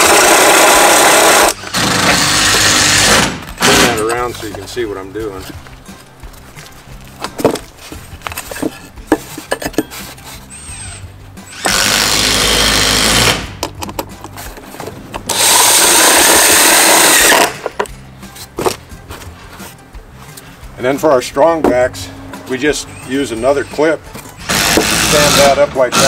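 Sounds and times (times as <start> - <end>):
cordless drill driving screws: 0.0 - 4.0, 10.5 - 13.5, 15.3 - 17.7, 22.9 - 26.0
handling clicks and knocks: 3.4 - 10.0, 13.6 - 15.3, 17.5 - 20.5.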